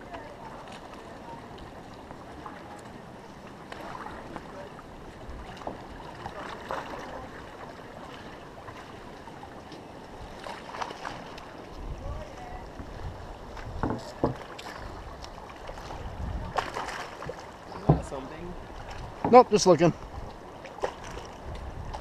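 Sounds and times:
water sloshing and splashing: 0.0 - 22.0
small crackling splashes: 14.0 - 17.8.

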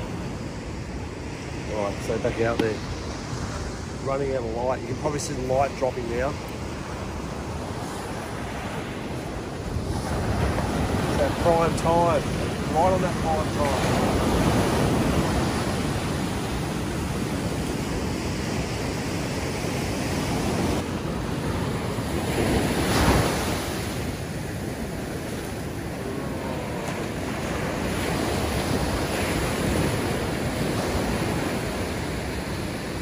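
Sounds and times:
ocean surf breaking: 0.0 - 33.0.

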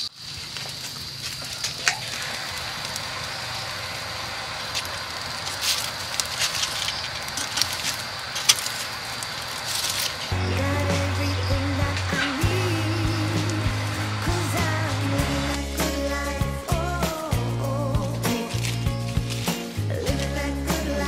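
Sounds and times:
charcoal fire crackling: 0.0 - 21.0
music: 10.3 - 21.0.

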